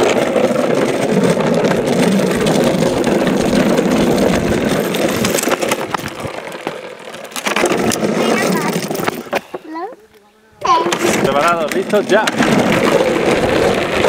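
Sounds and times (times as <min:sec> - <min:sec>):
plastic wheels rolling on asphalt: 0:00.0 - 0:14.0.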